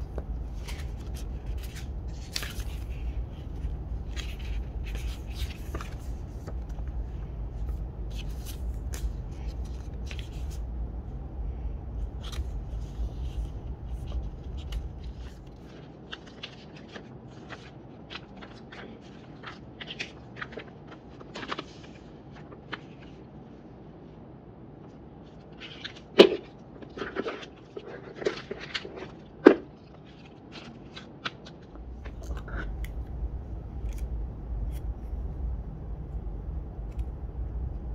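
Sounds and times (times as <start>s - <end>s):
low rumble: 0.0s - 15.7s, 31.7s - 37.9s.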